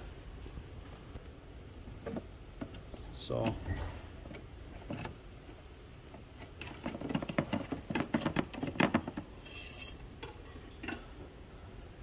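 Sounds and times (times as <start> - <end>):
dipstick scraping in metal tube: 9.4 - 10.0.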